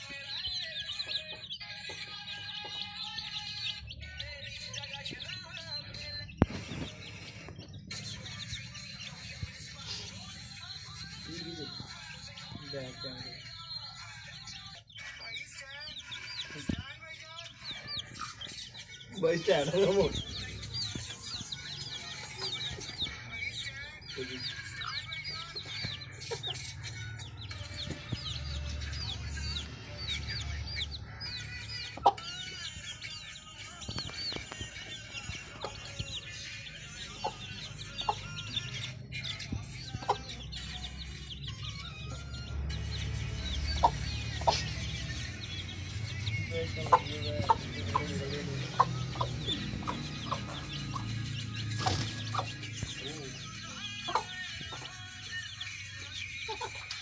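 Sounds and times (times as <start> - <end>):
chicks peeping: 0.0 - 57.0.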